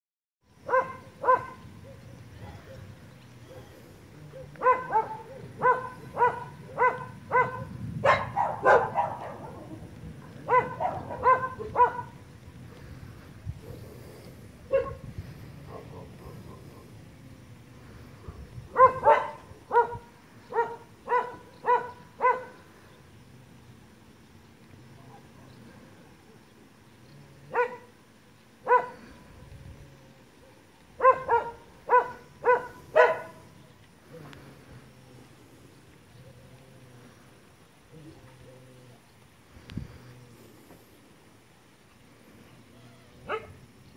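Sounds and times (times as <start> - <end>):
dog barking harshly: 0.6 - 1.6, 4.4 - 9.7, 10.4 - 12.2, 14.7 - 15.0, 18.7 - 22.6, 27.5 - 27.9, 28.7 - 29.0, 31.0 - 33.4
dog yapping: 0.7 - 1.6, 4.4 - 9.7, 10.5 - 12.2, 31.0 - 33.3.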